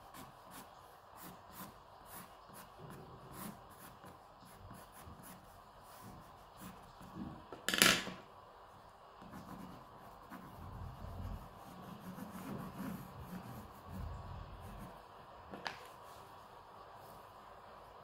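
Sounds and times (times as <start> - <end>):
pencil scratching on paper: 0.0 - 7.4, 9.2 - 15.0.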